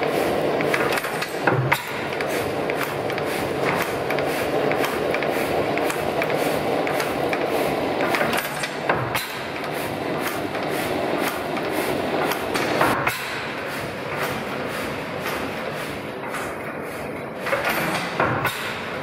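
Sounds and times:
stationary engine clattering: 0:00.0 - 0:19.0
valve gear clicking: 0:00.6 - 0:13.4.

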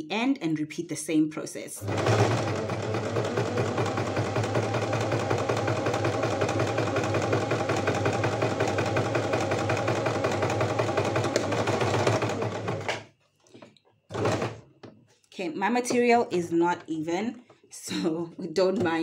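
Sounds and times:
sewing machine running: 0:01.8 - 0:13.0, 0:14.1 - 0:14.6.

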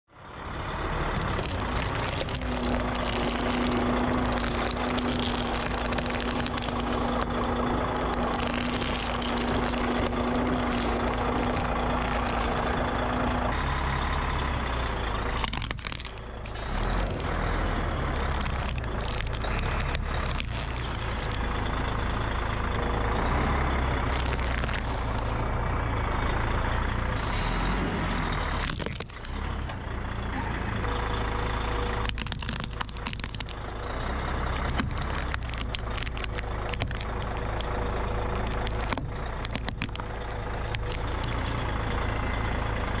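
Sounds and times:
car engine running: 0:00.1 - 0:43.0
plastic toys cracking and crunching: 0:01.0 - 0:13.6, 0:15.1 - 0:21.5, 0:24.0 - 0:25.6, 0:28.5 - 0:29.6, 0:31.9 - 0:41.8.

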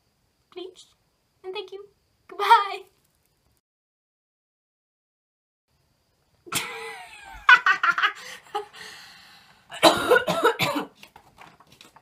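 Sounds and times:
girl laughing hard: 0:06.5 - 0:08.8.

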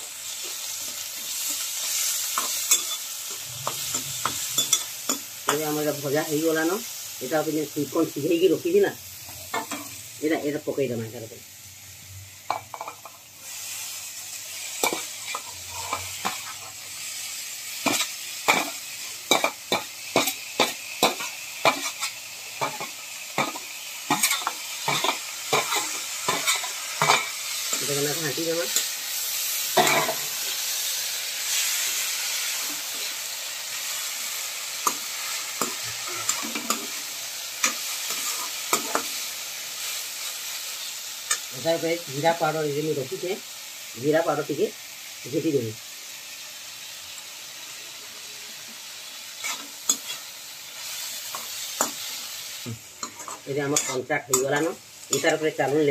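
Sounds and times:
corn sizzling in hot oil: 0:00.0 - 0:55.9
metal ladle scraping a pan: 0:14.8 - 0:16.7.

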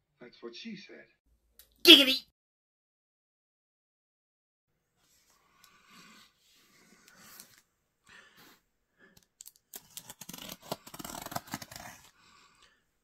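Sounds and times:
packaging being cut and torn: 0:09.4 - 0:12.1.

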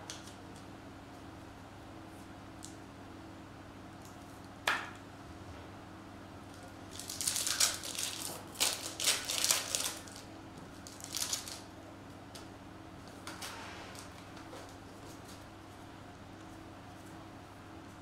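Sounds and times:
foil wrapper tearing and crinkling: 0:06.9 - 0:11.7.

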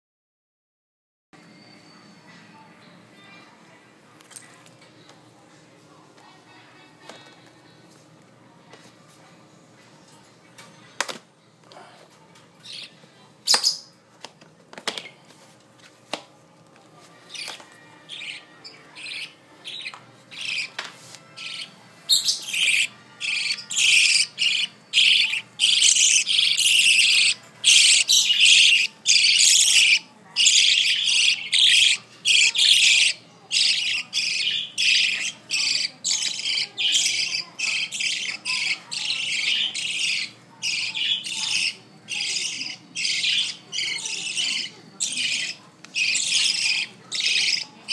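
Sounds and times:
budgerigars chirping: 0:12.6 - 0:12.9, 0:17.3 - 0:20.7, 0:21.4 - 0:47.9.

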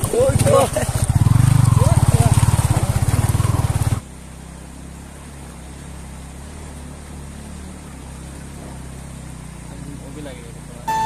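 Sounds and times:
motor scooter engine running: 0:00.0 - 0:04.0.

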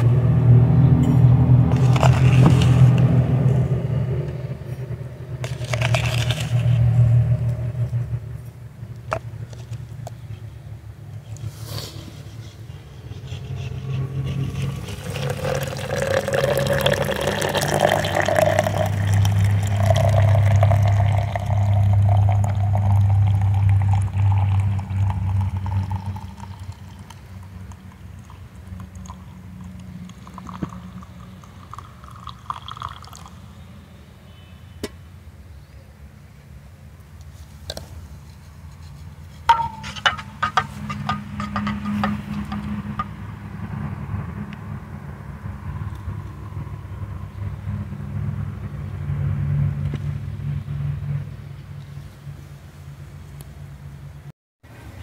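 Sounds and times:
liquid pouring into vessel: 0:14.5 - 0:33.4.

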